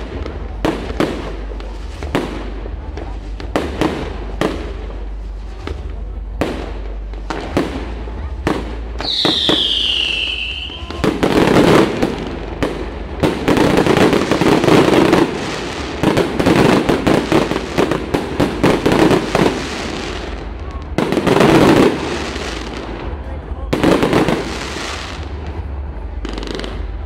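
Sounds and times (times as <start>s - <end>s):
fireworks banging and crackling: 0.0s - 27.0s
firework whistle: 9.0s - 11.9s.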